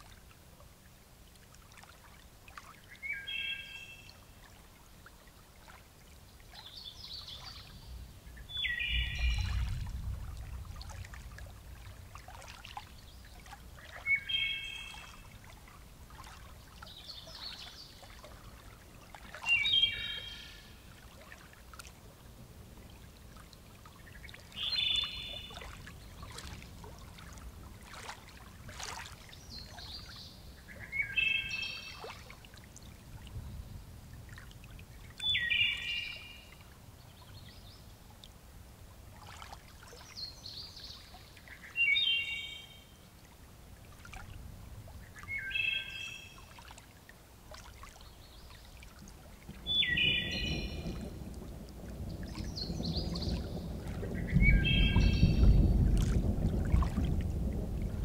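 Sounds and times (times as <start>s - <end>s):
water trickling and dripping: 0.0s - 58.0s
songbird whistling: 19.5s - 20.6s, 49.7s - 50.8s
high bird calls: 19.5s - 20.8s, 49.7s - 51.1s, 54.2s - 55.6s.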